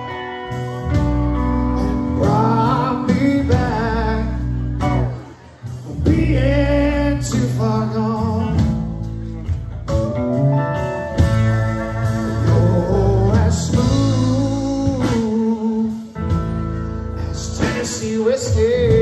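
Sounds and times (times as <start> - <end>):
country band playing a ballad: 0.0 - 19.0
man singing with vibrato: 1.6 - 9.0, 11.8 - 16.4, 17.2 - 19.0.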